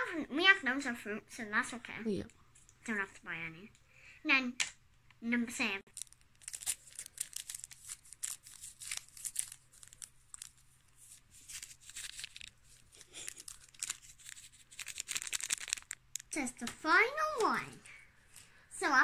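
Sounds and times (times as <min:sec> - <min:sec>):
paper rustling and crinkling: 0:05.9 - 0:18.6.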